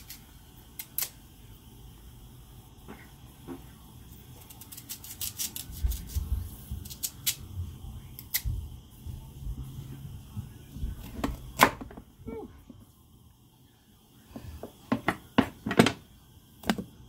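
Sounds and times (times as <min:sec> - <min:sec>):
knife cutting carrots: 0:04.4 - 0:07.5.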